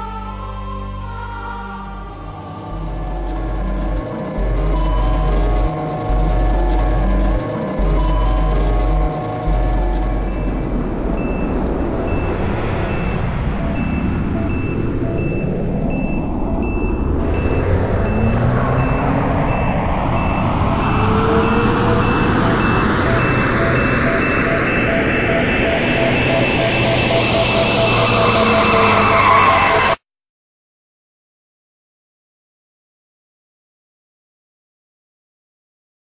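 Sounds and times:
rising sweep sound effect: 2.0 - 30.0
two-pitch electronic beeps: 2.2 - 30.0.

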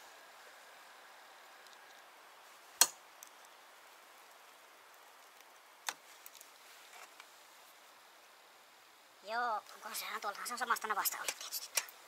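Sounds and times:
faint ticks: 11.1 - 12.0.

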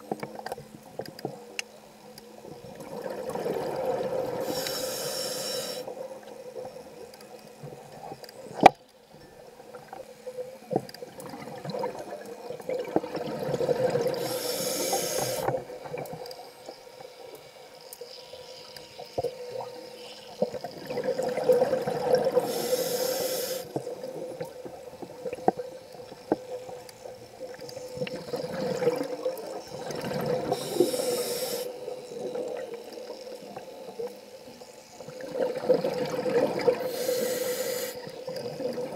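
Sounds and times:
regulator inhale hiss: 4.3 - 6.0, 14.1 - 15.6, 22.3 - 23.8, 30.4 - 32.2, 36.7 - 38.2.

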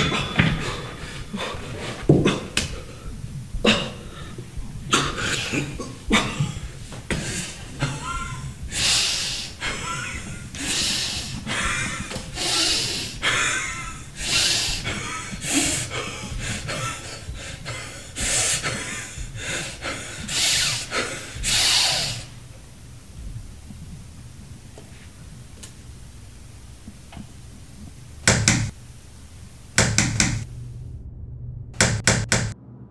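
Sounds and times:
man gasping for breath: 2.8 - 22.4.

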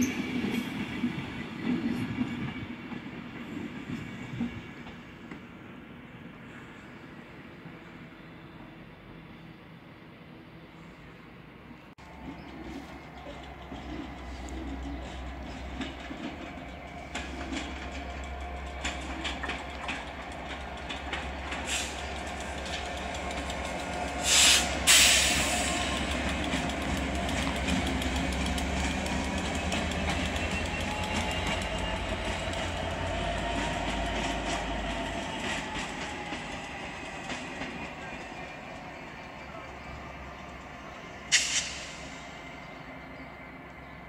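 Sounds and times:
train rumble: 0.0 - 44.0
train wheels clicking over rail joints: 12.1 - 38.5.

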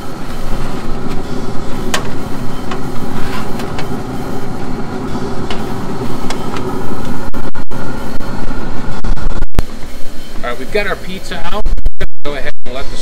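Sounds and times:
mechanical whirring: 0.0 - 13.0.

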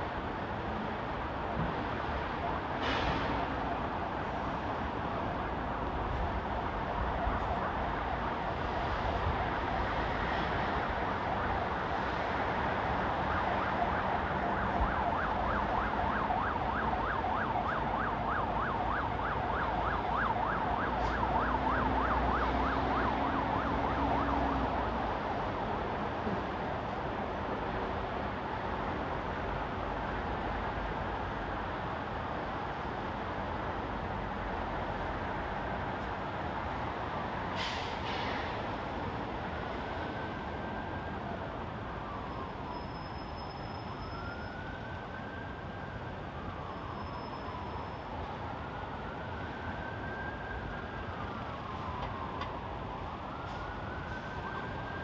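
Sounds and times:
city road traffic: 0.0 - 55.0
emergency siren yelping: 6.8 - 25.3, 39.6 - 55.0.

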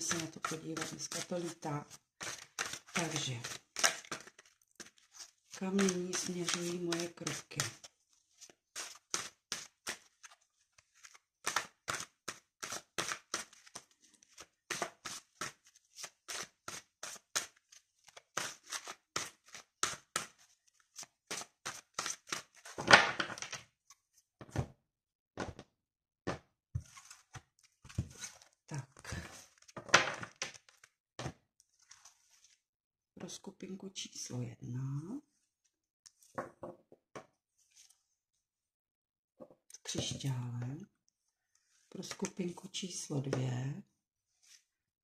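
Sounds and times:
loud card rustling: 0.0 - 22.8
cards being shuffled: 0.0 - 23.6, 26.8 - 30.9.

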